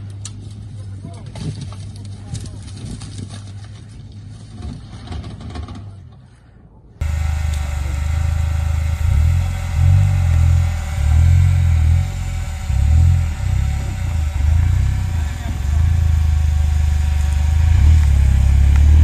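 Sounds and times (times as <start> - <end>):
off-road engine climbing: 0.0 - 6.4, 7.0 - 19.0
high whine: 7.0 - 19.0
low engine note: 7.0 - 19.0.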